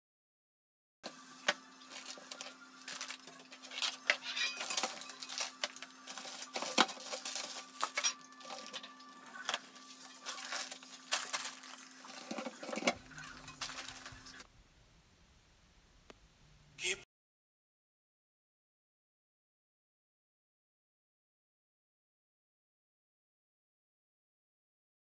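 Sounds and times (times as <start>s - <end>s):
plastic packets crinkling: 1.9s - 14.4s
steady low hum: 12.8s - 16.8s.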